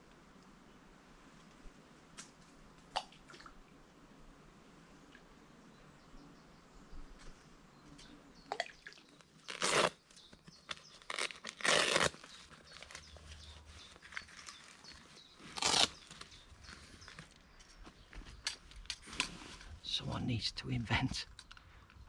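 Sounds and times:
velcro straps ripping: 0:09.4 - 0:10.0, 0:10.7 - 0:17.3.

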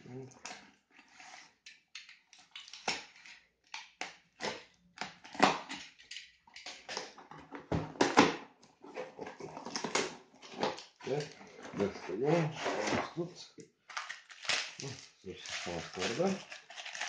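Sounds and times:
plastic wrap crinkling: 0:13.1 - 0:17.0.

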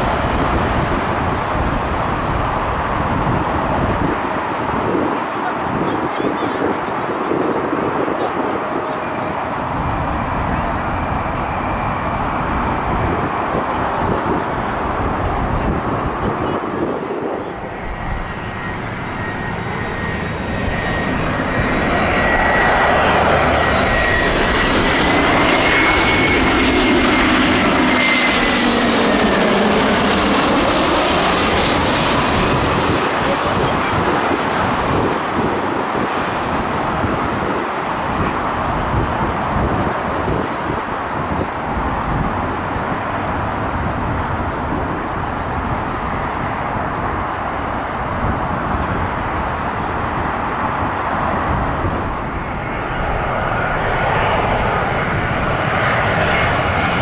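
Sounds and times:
high jet engine whine: 0:00.0 - 0:57.0
jet airliner roaring overhead: 0:00.0 - 0:57.0.

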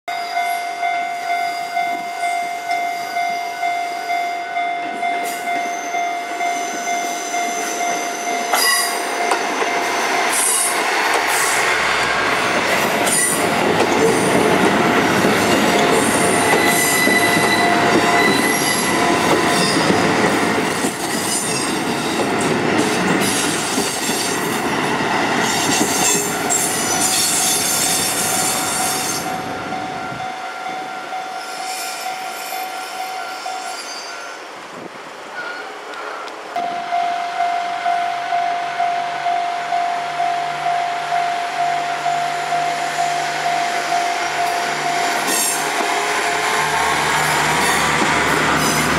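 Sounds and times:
level crossing warning bell: 0:00.1 - 0:10.9, 0:12.6 - 0:21.0, 0:25.7 - 0:34.4, 0:35.4 - 0:47.7
diesel train passing: 0:00.4 - 0:48.9
high wheel squeal: 0:05.4 - 0:20.2, 0:30.8 - 0:34.5.

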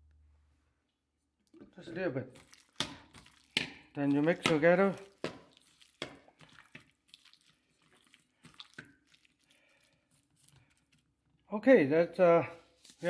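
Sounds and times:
gloved hand squishing meat: 0:02.0 - 0:11.5.

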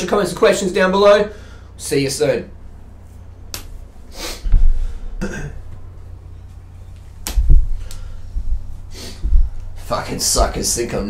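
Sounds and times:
dull low thumps: 0:02.8 - 0:10.8
microphone handling rustles: 0:03.8 - 0:10.5.

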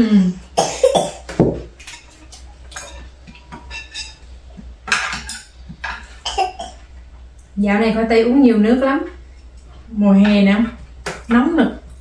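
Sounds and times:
chopsticks and dishes clinking: 0:01.8 - 0:06.6.

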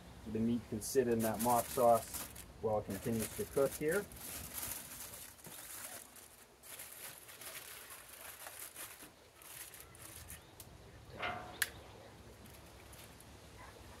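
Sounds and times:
aluminium foil crinkling: 0:00.8 - 0:10.6, 0:12.3 - 0:13.3.

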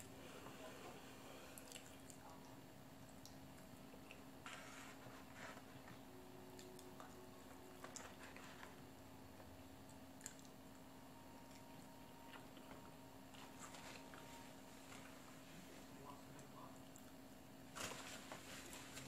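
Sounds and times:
low room hum: 0:00.0 - 0:19.0
faint chewing: 0:00.3 - 0:04.6, 0:05.4 - 0:10.8.

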